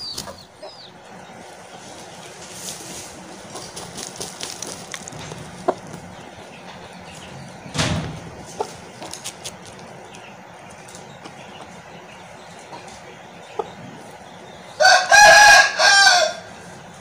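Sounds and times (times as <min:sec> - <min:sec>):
chickens clucking: 0:00.0 - 0:17.0
scratchy rustling of feathers and dirt: 0:00.0 - 0:17.0
wings shaking: 0:03.5 - 0:06.1.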